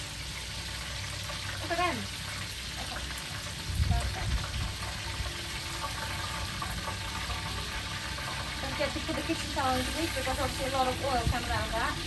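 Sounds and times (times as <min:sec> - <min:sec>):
deep-frying oil bubbling and sizzling: 0:00.0 - 0:12.0
wind rumble on microphone: 0:03.6 - 0:04.9, 0:11.0 - 0:12.0.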